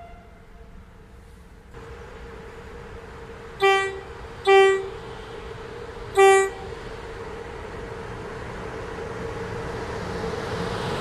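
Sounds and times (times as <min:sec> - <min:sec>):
train air horn blasts: 0:00.0 - 0:00.8, 0:03.6 - 0:05.1, 0:06.2 - 0:06.8
train hum: 0:00.0 - 0:11.0.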